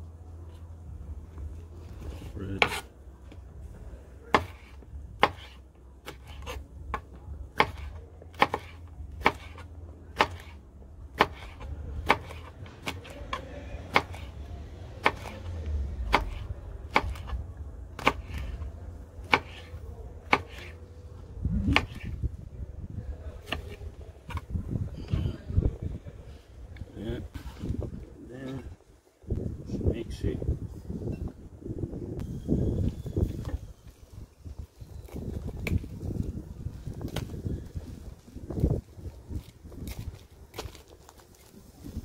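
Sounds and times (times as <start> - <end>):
knife chopping on wooden board: 2.6 - 2.8, 4.3 - 14.3, 15.0 - 15.4, 16.1 - 17.4, 18.0 - 18.6, 19.2 - 20.8.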